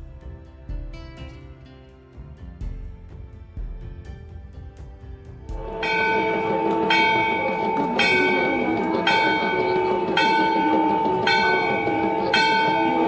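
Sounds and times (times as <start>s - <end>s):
temple bell ringing: 5.6s - 13.0s.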